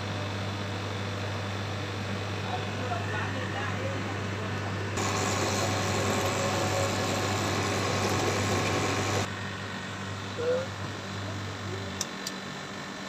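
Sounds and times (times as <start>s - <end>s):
tumble dryer running: 4.8s - 9.4s.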